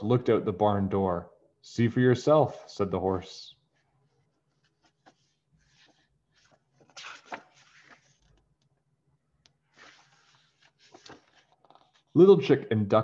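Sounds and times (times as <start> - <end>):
book pages turning: 3.8 - 12.2.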